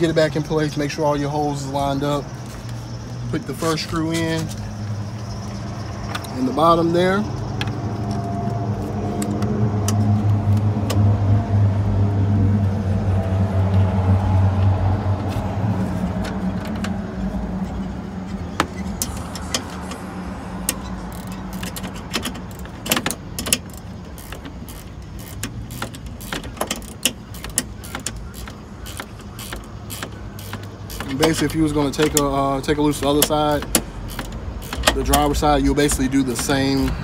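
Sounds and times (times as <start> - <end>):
vehicle engine hum: 0.0 - 37.0
small metallic clicks: 17.6 - 37.0.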